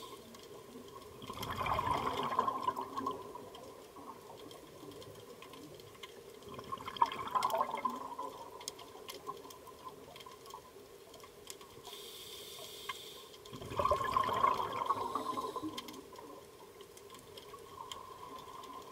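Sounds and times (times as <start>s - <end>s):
exhaled bubbles gurgling: 0.0s - 10.8s, 13.5s - 18.9s
faint clicks: 0.0s - 18.9s
faint steady hum: 0.0s - 18.9s
regulator inhalation hiss: 11.8s - 13.3s.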